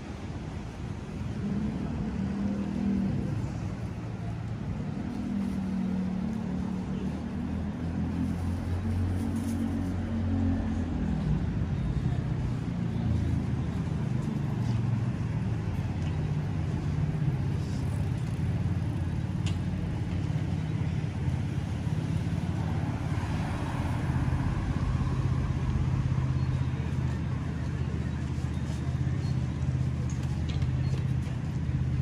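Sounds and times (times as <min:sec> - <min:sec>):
car engines humming: 0:00.0 - 0:32.0
city street noise: 0:00.0 - 0:32.0.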